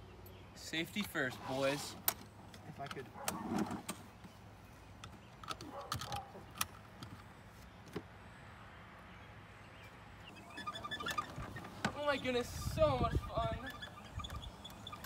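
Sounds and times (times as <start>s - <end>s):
seat belt buckling clicks: 5.0s - 7.2s.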